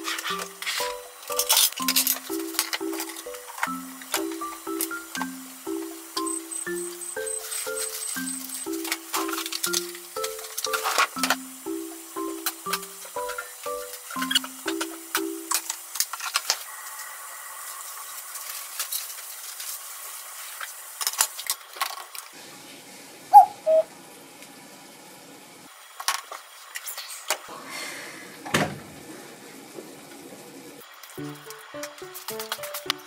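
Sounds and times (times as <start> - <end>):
dishes and utensils clinking: 0.0 - 5.3
kitchen timer beeps: 0.0 - 15.5.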